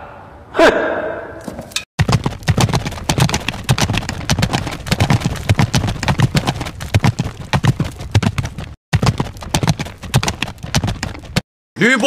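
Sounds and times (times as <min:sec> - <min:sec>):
galloping horse hoofbeats: 0:02.0 - 0:11.4.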